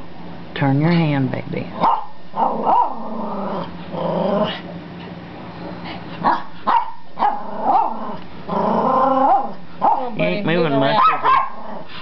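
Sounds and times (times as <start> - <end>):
dog yipping: 1.8 - 3.0, 6.2 - 8.0, 9.2 - 10.2, 10.9 - 11.6
dog whining and grumbling: 7.3 - 11.9.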